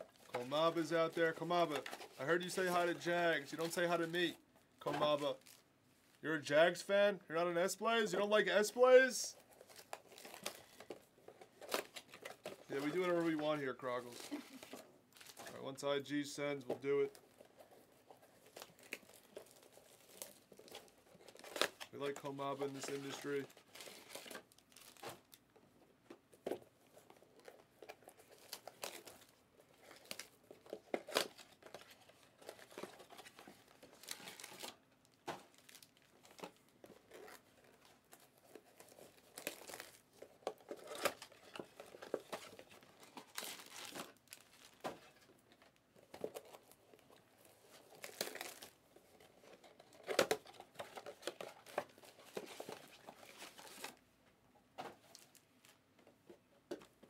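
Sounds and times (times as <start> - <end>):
plastic wrap crinkling and tearing: 9.4 - 15.8, 17.1 - 25.5, 26.9 - 54.0, 55.0 - 55.8.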